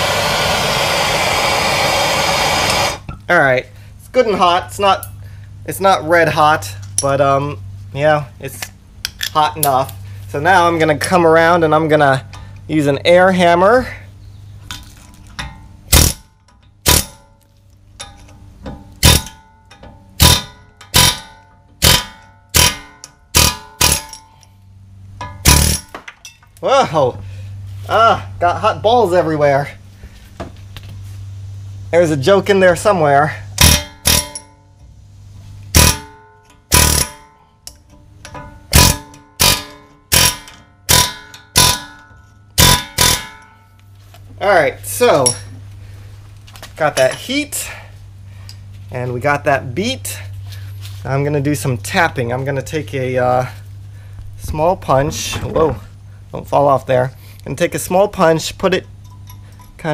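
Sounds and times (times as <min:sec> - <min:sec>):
metal-on-metal hammer blows: 0:33.6 - 0:34.7.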